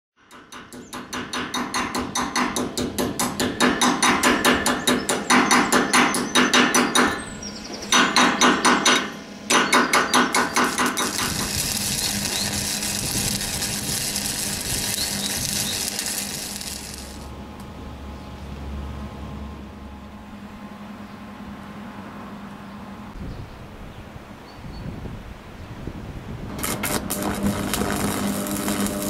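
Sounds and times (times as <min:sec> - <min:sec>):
electric arc welding hiss: 0:10.2 - 0:17.3, 0:26.5 - 0:29.0.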